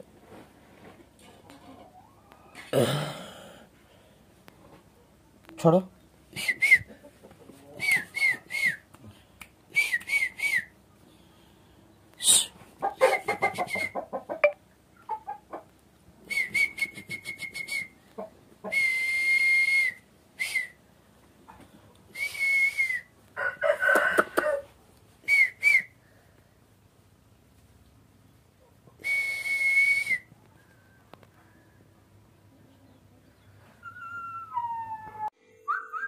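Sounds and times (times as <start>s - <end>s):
person whistling breathily: 18.7s - 20.8s, 22.2s - 23.1s, 29.0s - 31.7s
rooster calls: 23.4s - 24.8s.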